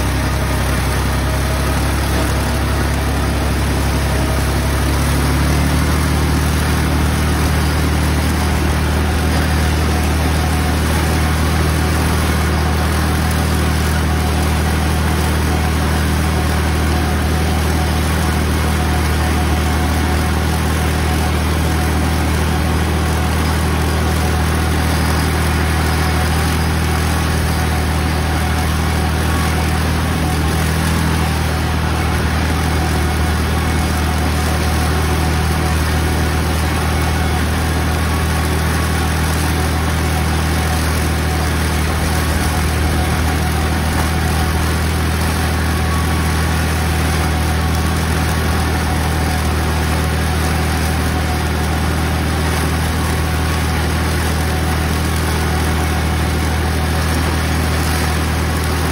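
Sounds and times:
tractor engine droning: 0.0 - 58.9.

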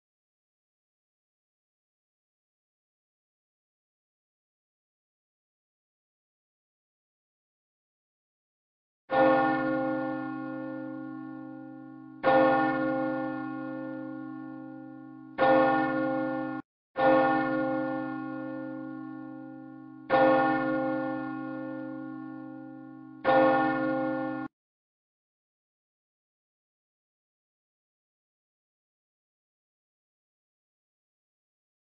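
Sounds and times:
church bell tolling: 9.1 - 24.5.

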